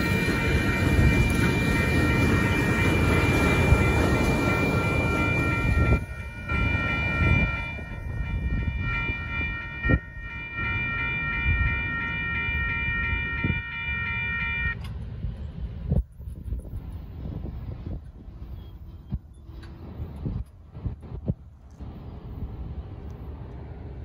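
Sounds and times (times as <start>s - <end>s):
railroad crossing bell ringing: 0.0s - 14.9s
diesel locomotives passing: 0.0s - 24.0s.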